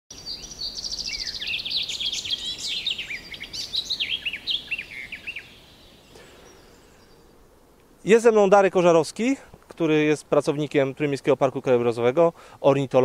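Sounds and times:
songbird singing: 0.1 - 13.0.

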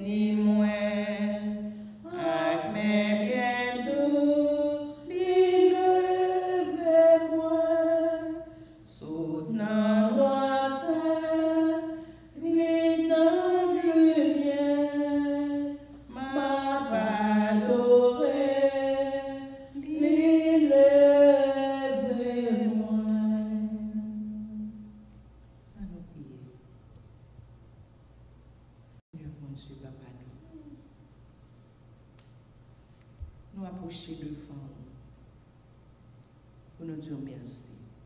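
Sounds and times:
woman singing a hymn: 0.0 - 25.0
woman breathing: 8.5 - 8.9, 11.9 - 12.4.

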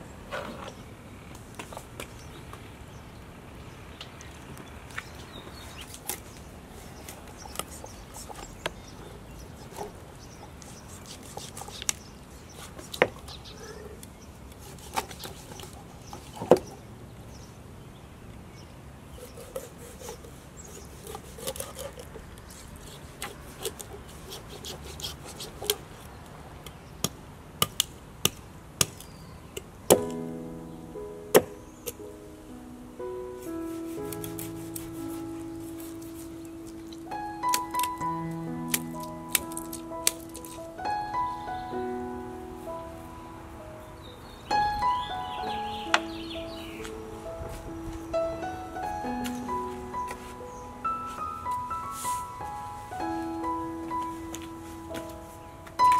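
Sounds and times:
knife cutting fish on board: 20.9 - 22.1
music: 30.0 - 55.9.

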